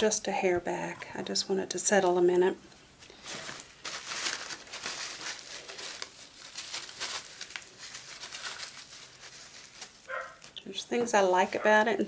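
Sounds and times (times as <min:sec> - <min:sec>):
plastic rustling and crinkling: 0:03.0 - 0:11.8.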